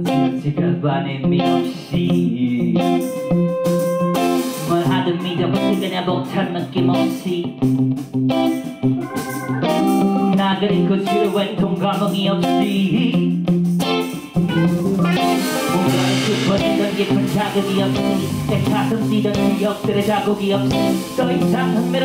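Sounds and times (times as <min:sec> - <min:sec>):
electric guitar riff: 0:01.4 - 0:11.3, 0:13.8 - 0:22.0
blues band playing: 0:01.4 - 0:22.0
cymbals: 0:14.5 - 0:22.0.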